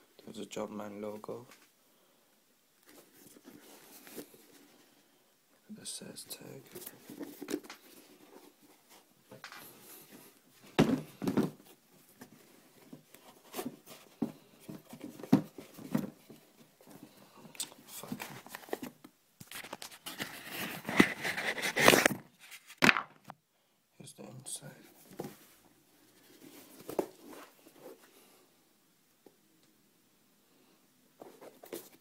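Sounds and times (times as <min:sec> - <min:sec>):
hands rustling a sneaker: 0:02.8 - 0:05.0, 0:06.2 - 0:23.0, 0:24.9 - 0:28.4, 0:31.2 - 0:32.0.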